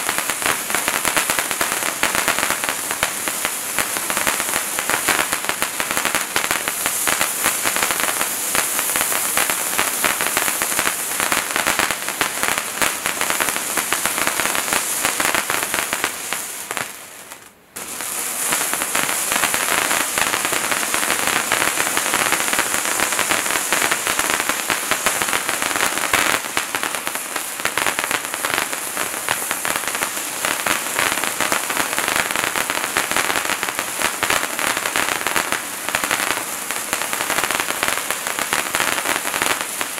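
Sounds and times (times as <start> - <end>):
firework fountain hissing and crackling: 0.0 - 39.9.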